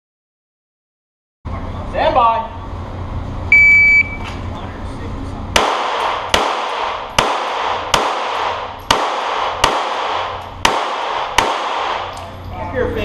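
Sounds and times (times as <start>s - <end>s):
pistol shots echoing indoors: 5.5s - 12.4s.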